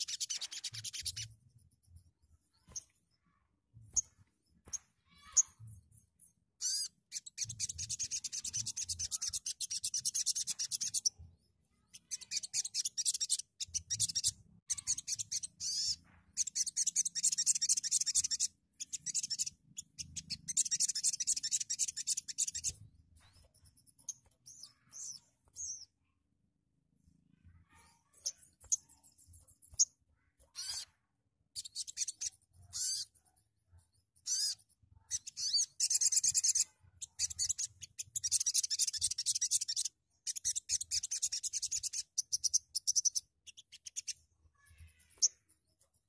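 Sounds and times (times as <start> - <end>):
sunbird rasping chatter: 6.6 - 11.1, 31.6 - 33.2.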